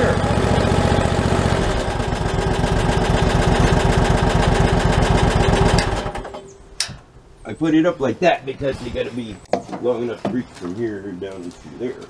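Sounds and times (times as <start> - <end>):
engine idling: 0.0 - 6.5
sharp click: 6.8 - 7.1.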